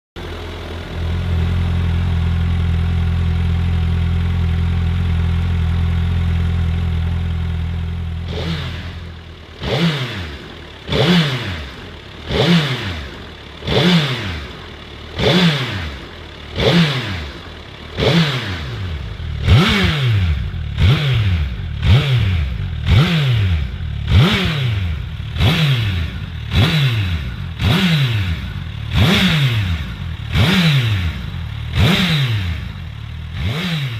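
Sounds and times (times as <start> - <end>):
motorcycle engine idling: 0.2 - 33.9
motorcycle engine revving: 0.2 - 33.9.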